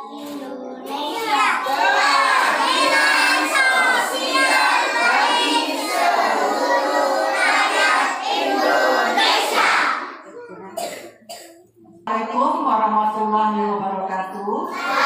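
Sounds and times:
children and women singing: 0:00.0 - 0:10.2, 0:14.8 - 0:15.0.

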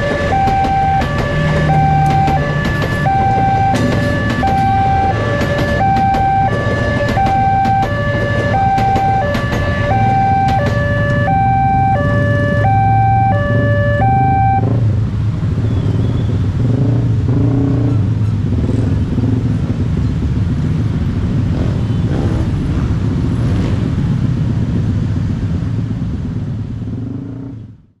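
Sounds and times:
two-note crossing alarm: 0:00.0 - 0:14.8
train rumble: 0:00.0 - 0:15.6.

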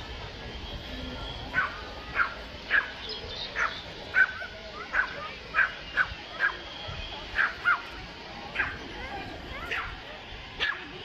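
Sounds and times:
dog barking: 0:01.5 - 0:03.0, 0:03.6 - 0:06.6, 0:07.4 - 0:07.8, 0:08.6 - 0:08.8, 0:09.7 - 0:10.0, 0:10.6 - 0:10.9.

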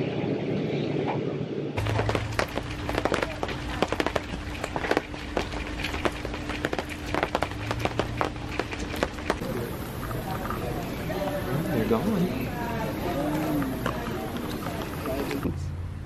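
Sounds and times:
rain drops tapping: 0:01.8 - 0:15.6
faint steady hum: 0:01.8 - 0:16.0.

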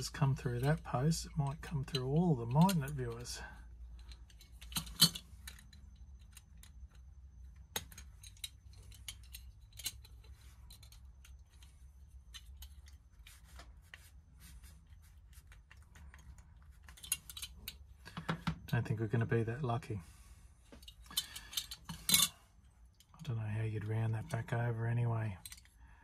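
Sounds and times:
pliers clicking on metal: 0:07.6 - 0:11.4.

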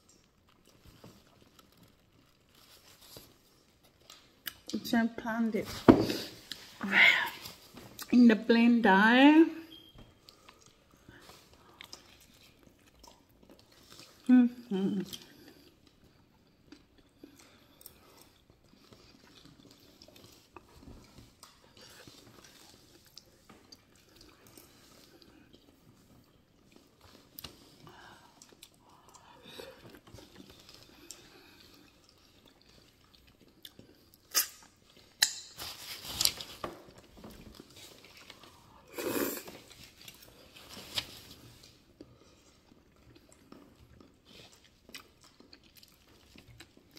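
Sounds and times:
chewing and sucking meat: 0:15.0 - 0:35.2, 0:41.3 - 0:46.9.

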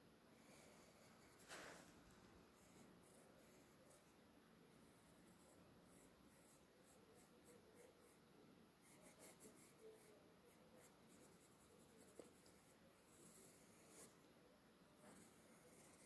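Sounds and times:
pencil scratching on paper: 0:00.4 - 0:01.7, 0:02.5 - 0:04.1, 0:05.0 - 0:08.2, 0:08.8 - 0:14.3, 0:15.0 - 0:16.0.

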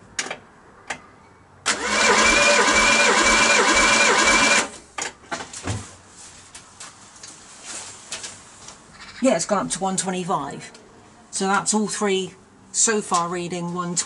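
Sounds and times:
engine cranked by starter motor: 0:01.6 - 0:04.8.

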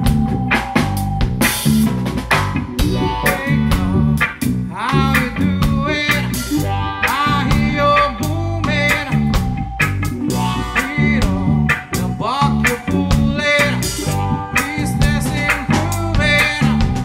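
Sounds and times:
chopped electric guitar strums: 0:00.0 - 0:17.0
reggae band playing: 0:00.0 - 0:17.0
person singing: 0:03.0 - 0:09.6, 0:10.3 - 0:17.0.

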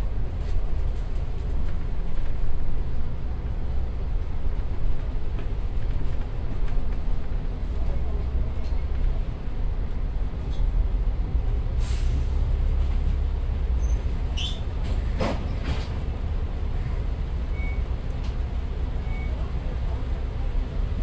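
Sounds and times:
bus engine rumbling: 0:00.0 - 0:21.0
air brake hisses: 0:11.8 - 0:12.4.

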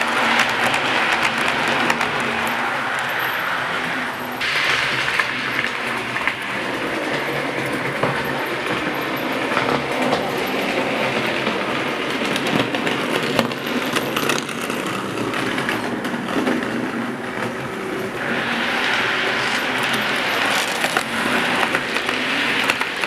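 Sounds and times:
wheels clicking over rail joints: 0:00.0 - 0:23.0
model train motor whirring: 0:13.4 - 0:23.0.

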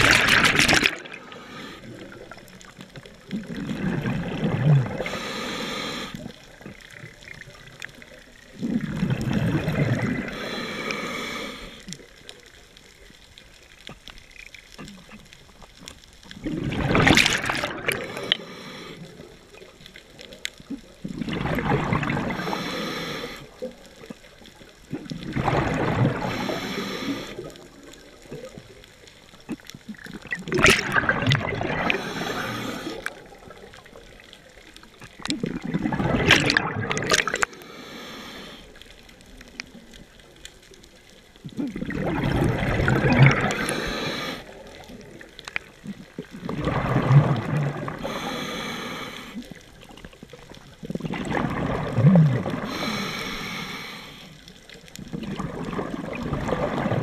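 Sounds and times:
diver exhaling bubbles: 0:00.0 - 0:07.2, 0:08.5 - 0:11.6, 0:16.4 - 0:19.2, 0:20.8 - 0:23.8, 0:24.9 - 0:28.6, 0:29.5 - 0:34.0, 0:35.2 - 0:37.6, 0:41.4 - 0:49.5, 0:50.8 - 0:53.6, 0:55.0 - 0:57.0.

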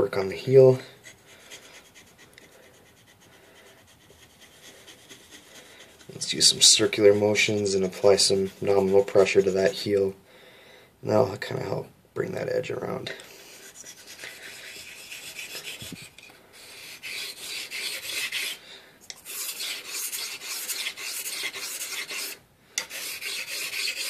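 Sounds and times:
razor blade scraping on whetstone: 0:00.9 - 0:09.5, 0:13.6 - 0:24.0.

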